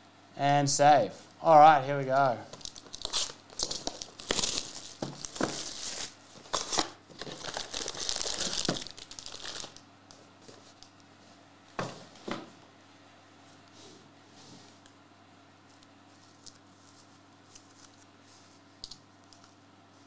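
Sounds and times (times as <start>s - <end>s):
foil packs crinkling: 2.5s - 9.8s.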